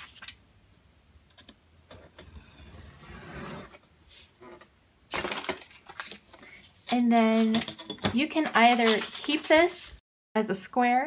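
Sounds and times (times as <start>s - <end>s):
paper rustle: 5.1s - 7.6s, 8.2s - 10.0s.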